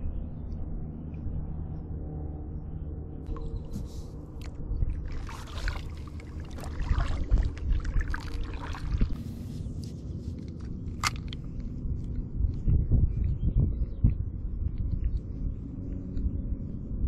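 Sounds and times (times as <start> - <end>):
paddle strokes in water: 3.6 - 10.4.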